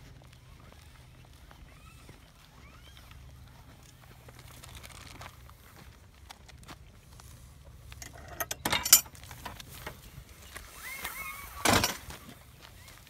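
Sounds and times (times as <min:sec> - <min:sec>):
metal gate latch clanking: 0:08.0 - 0:09.1.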